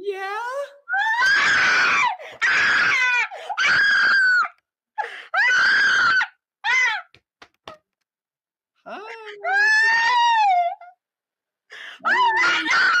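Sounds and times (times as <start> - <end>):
girl screaming: 12.0 - 13.0.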